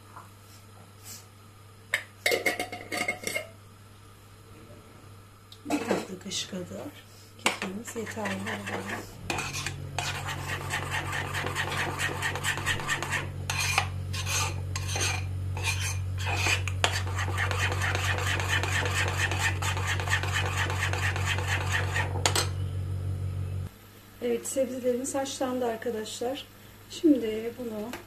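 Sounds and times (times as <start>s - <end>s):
spoon whisking in metal bowl: 7.4s - 22.4s
low hum: 8.2s - 23.7s.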